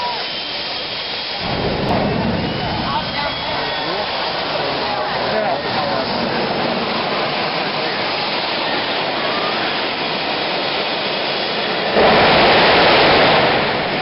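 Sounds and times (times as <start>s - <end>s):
jet engine rushing: 0.0s - 14.0s.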